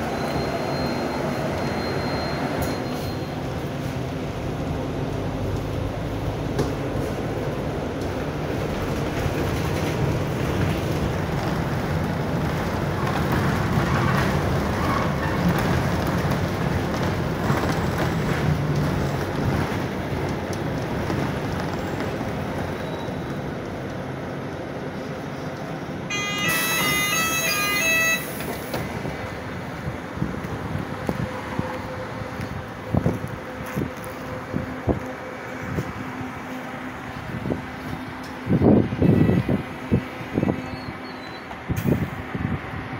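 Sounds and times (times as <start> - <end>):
bus diesel engine: 0.0 - 42.9
road noise: 0.0 - 42.9
short beeping tones: 26.1 - 28.3.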